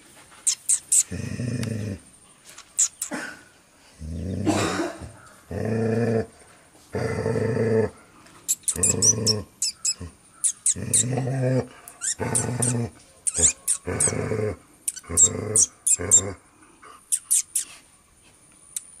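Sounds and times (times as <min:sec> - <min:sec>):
dog growling: 0:00.9 - 0:02.1, 0:04.0 - 0:08.0, 0:08.6 - 0:17.0.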